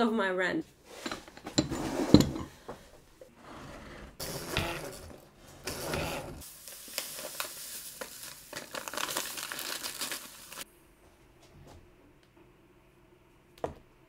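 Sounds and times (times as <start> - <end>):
paper bag crinkling: 4.2 - 10.6
sugar pouring hiss: 4.2 - 10.6.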